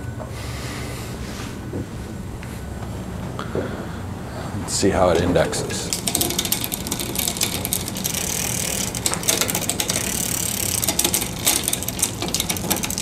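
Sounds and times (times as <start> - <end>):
bike chain ticking over cogs: 5.7 - 13.0
derailleur clicking: 5.8 - 13.0.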